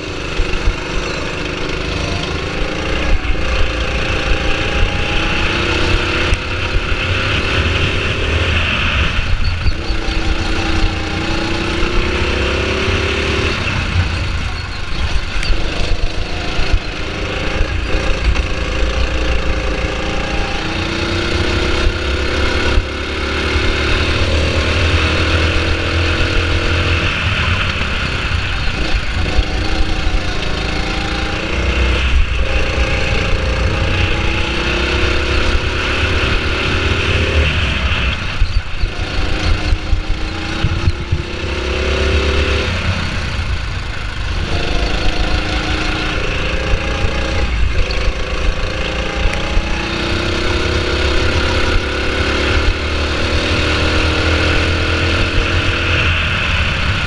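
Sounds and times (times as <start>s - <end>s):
go-kart engine revving: 0.0s - 57.0s
wind rumble on microphone: 0.0s - 57.0s.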